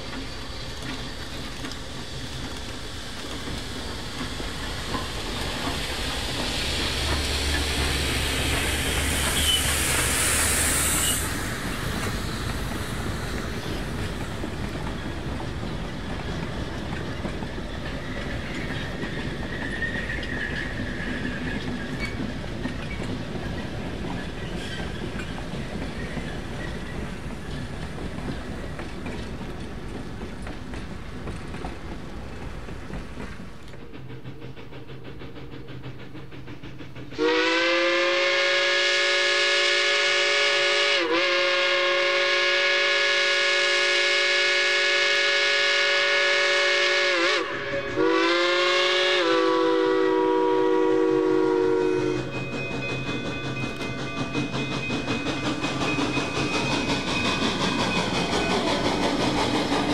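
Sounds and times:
wheels clacking over rail joints: 0:00.0 - 0:10.2, 0:11.3 - 0:37.2, 0:50.4 - 0:59.9
steam locomotive hissing: 0:00.0 - 0:59.9
faint wheel squeal: 0:09.2 - 0:11.5, 0:18.0 - 0:22.2, 0:22.8 - 0:27.7.

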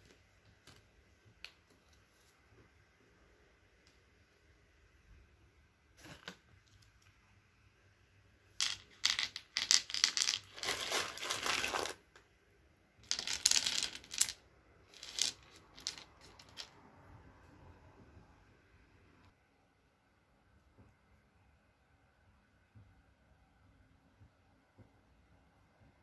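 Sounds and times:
plastic sweet bag crinkling: 0:09.7 - 0:12.0.

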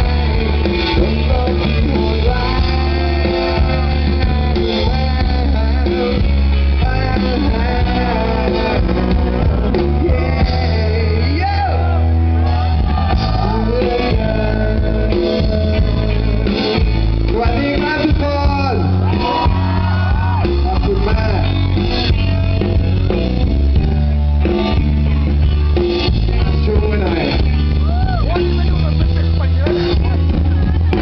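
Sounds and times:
man singing into microphone: 0:00.0 - 0:20.0
live band playing: 0:00.0 - 0:31.0.

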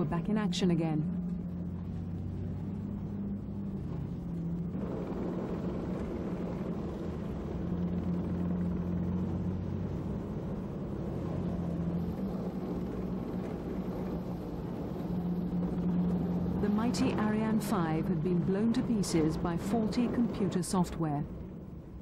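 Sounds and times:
low engine rumble: 0:00.0 - 0:22.0.

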